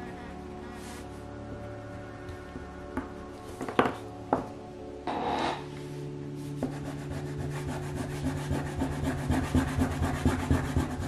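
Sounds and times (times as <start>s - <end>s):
crayon rubbing on paper: 6.4s - 11.0s.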